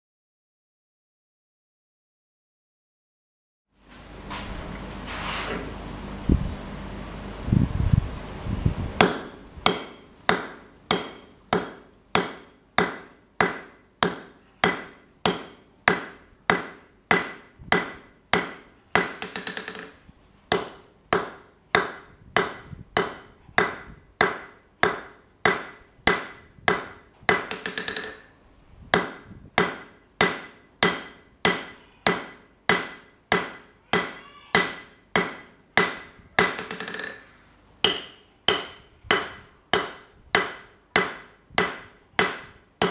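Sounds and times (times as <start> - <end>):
hammer striking steel on anvil: 9.0 - 19.9, 20.5 - 28.3, 29.0 - 37.2, 37.8 - 42.9.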